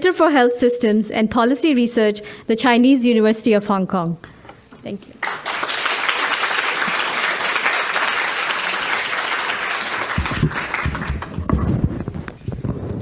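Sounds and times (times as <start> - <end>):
audience applauding: 5.2 - 11.5
microphone handling thumps: 10.2 - 13.0.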